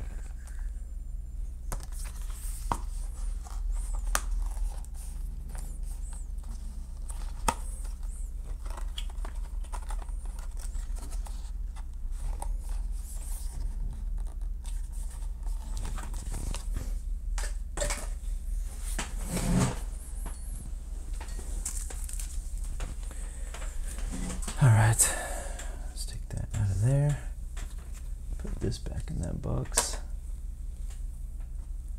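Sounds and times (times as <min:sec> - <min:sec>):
steady low hum: 0:00.0 - 0:31.9
packaging rustling and crinkling: 0:01.8 - 0:17.0, 0:18.9 - 0:24.6.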